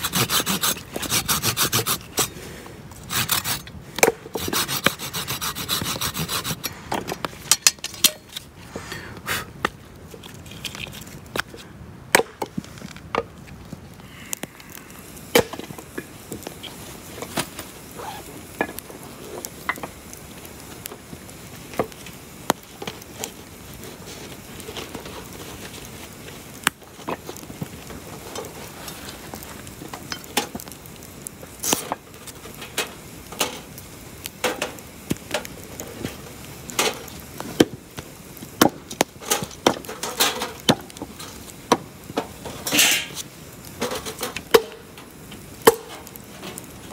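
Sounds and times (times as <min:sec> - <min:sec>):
knife scraping log: 0:00.0 - 0:02.4, 0:03.0 - 0:03.7, 0:04.3 - 0:06.7
campfire crackling and popping: 0:00.0 - 0:46.9.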